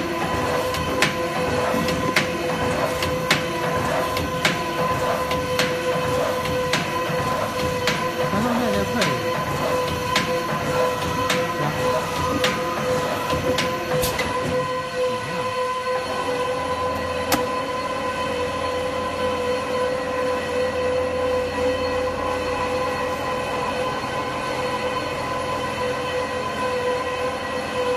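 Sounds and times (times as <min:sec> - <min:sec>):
slicing machine whine and hum: 0:00.0 - 0:27.9.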